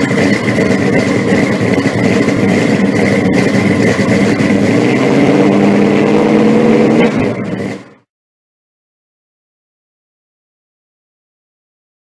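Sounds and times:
car engine idling loudly: 0:00.0 - 0:08.1.

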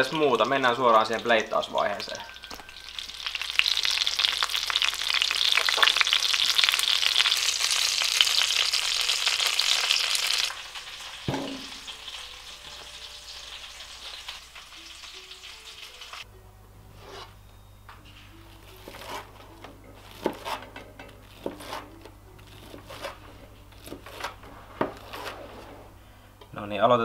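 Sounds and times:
chicken frying in hot oil: 0:00.0 - 0:16.2.

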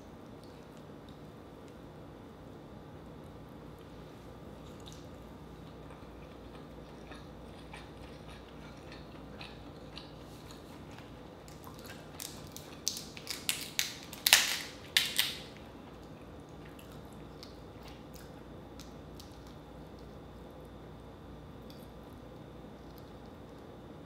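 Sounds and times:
crab shell cracking: 0:11.5 - 0:15.6.

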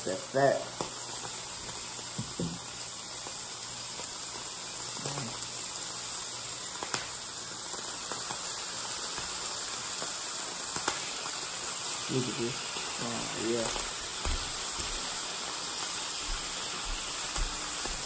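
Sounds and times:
bacon sizzling in a skillet: 0:00.0 - 0:18.0
fat popping and crackling: 0:06.8 - 0:07.2, 0:13.5 - 0:18.0.

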